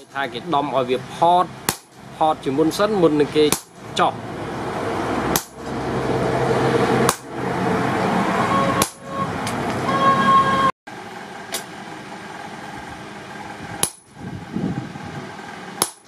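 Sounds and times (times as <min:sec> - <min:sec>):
steady mechanical hum: 0:00.0 - 0:16.0
hammer blows on metal: 0:08.3 - 0:10.7.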